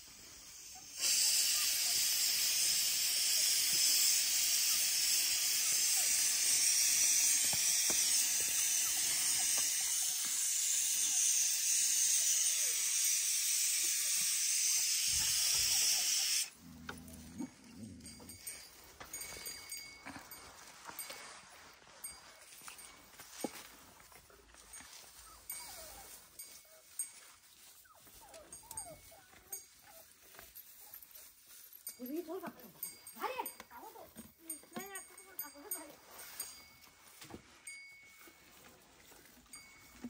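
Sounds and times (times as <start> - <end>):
loud steady hiss: 0.0 - 16.5.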